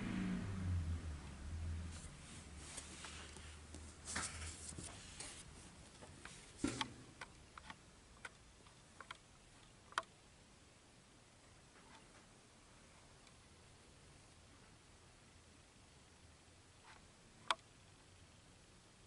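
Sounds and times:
low hum: 0:00.0 - 0:04.6.

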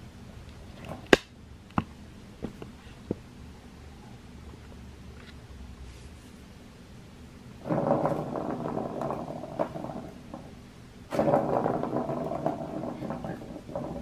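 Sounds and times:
plastic ball rolling round track: 0:07.6 - 0:14.0.

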